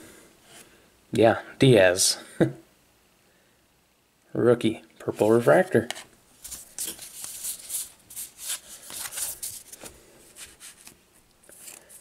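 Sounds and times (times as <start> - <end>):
cards swishing and tapping: 6.4 - 12.0.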